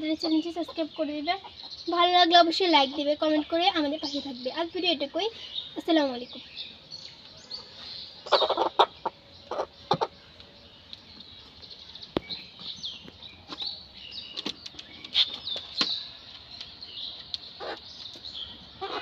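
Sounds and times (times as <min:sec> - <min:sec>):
birds chirping: 0:00.0 - 0:19.0
hen clucking: 0:02.7 - 0:03.4, 0:08.2 - 0:10.2, 0:17.6 - 0:17.8, 0:18.6 - 0:19.0.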